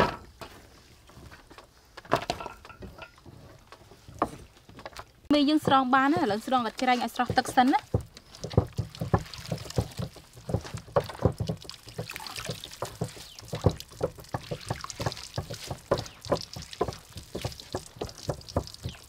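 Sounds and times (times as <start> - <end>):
wet noodles splashing and slapping: 5.6 - 19.0.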